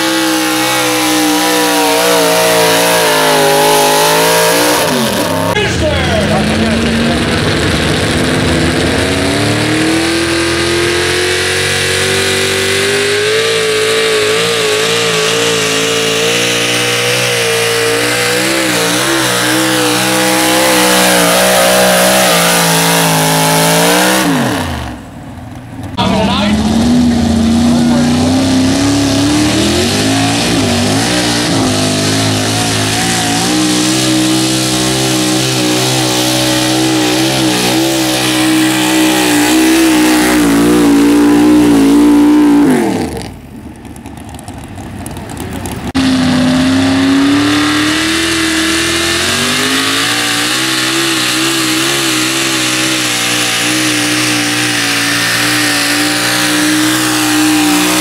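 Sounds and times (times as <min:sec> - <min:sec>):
truck engine at high revs: 0:00.0 - 0:58.0.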